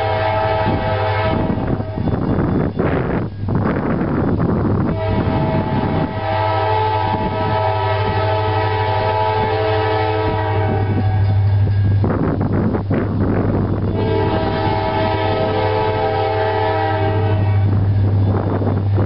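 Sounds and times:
locomotive air horn blasts: 0.0s - 2.1s, 4.8s - 11.7s, 13.8s - 18.9s
steady low rumble: 0.0s - 19.0s.

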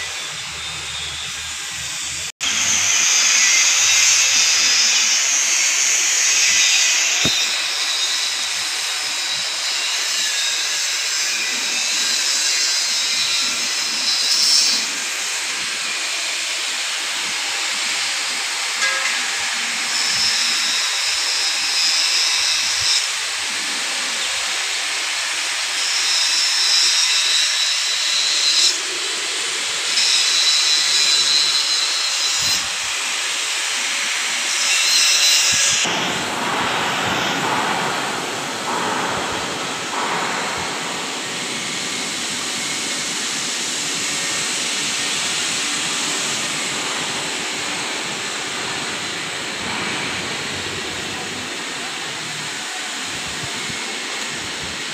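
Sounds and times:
loud hissing noise: 0.0s - 54.9s
high thin whine: 30.9s - 54.9s.

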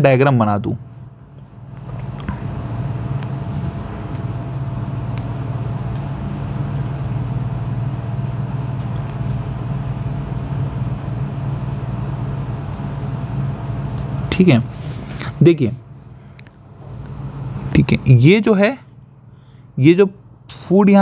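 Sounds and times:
motor humming: 1.3s - 15.2s.

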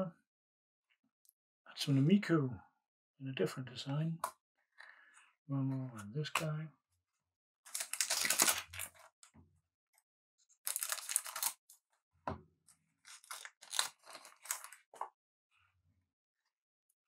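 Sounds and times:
card pack tearing: 7.7s - 9.0s, 10.6s - 11.6s, 13.0s - 14.8s
wrapper crinkling and rustling: 7.7s - 9.1s, 10.6s - 11.6s, 13.0s - 14.9s.

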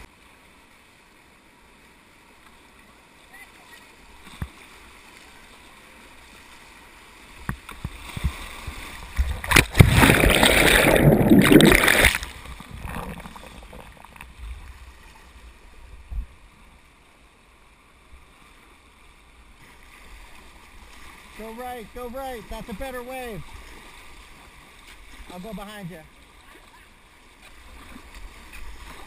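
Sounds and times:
water splashing over camera: 7.5s - 14.9s
whitewater rushing: 8.7s - 14.3s.

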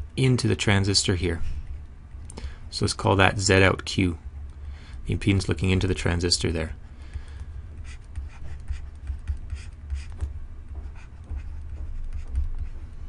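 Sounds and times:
steady low hum: 0.0s - 13.0s
pen scratching on paper: 7.8s - 12.8s.

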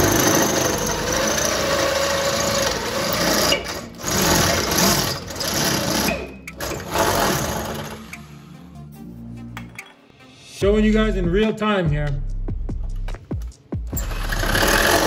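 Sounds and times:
power drill whining: 0.0s - 8.3s, 14.0s - 15.0s.

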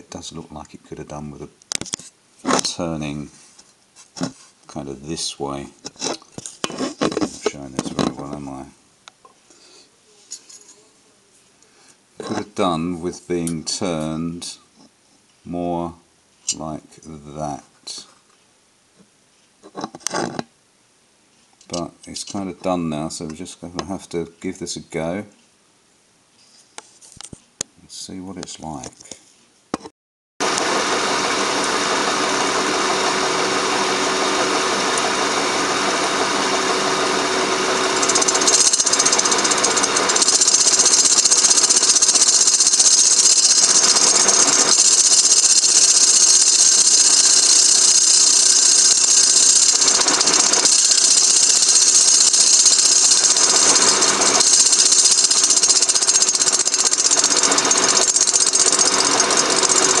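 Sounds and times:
milling machine hum: 30.4s - 60.0s
high hiss of boring head cutting: 31.6s - 60.0s.

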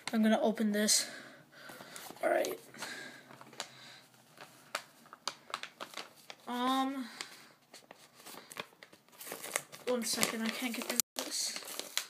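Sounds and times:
paper envelope crinkling and tearing: 3.3s - 12.0s.

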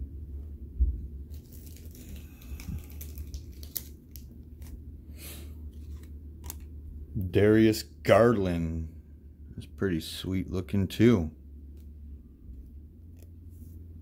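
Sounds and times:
low steady hum: 0.0s - 14.0s
card packaging crinkling: 1.2s - 4.8s, 5.7s - 6.7s.

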